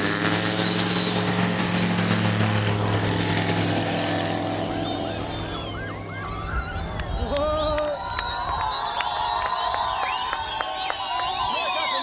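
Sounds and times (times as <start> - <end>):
propeller engine droning: 0.0 - 12.0
crowd shouts and whistles: 4.7 - 12.0.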